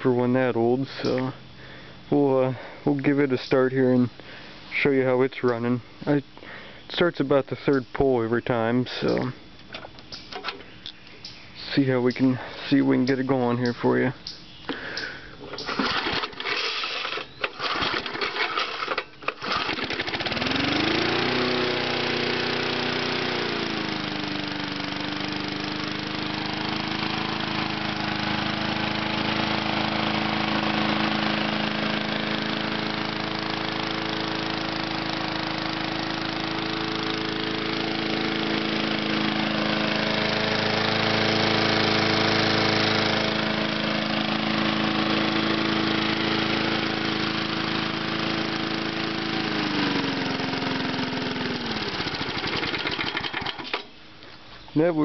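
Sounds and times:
lawn mower engine running: 0:04.2 - 0:14.0, 0:14.7 - 0:54.3
recoil-start pulls: 0:15.5 - 0:54.0.

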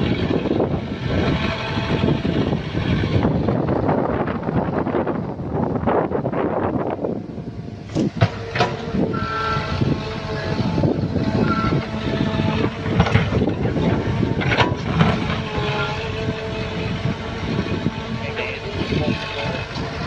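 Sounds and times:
excavator diesel engine: 0:00.0 - 0:20.0
hydraulic whine: 0:00.0 - 0:20.0.

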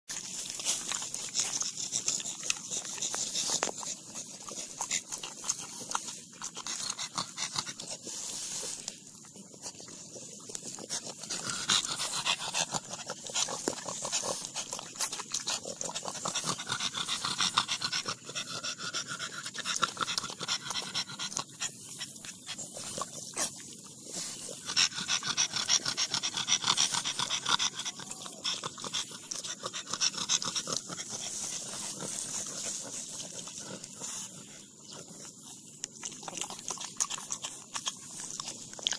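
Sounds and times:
leaves rustling: 0:00.1 - 0:06.9, 0:07.8 - 0:12.2, 0:21.8 - 0:25.2, 0:30.4 - 0:35.3
dog chewing leaves: 0:00.1 - 0:38.9
dog panting: 0:00.1 - 0:38.9.

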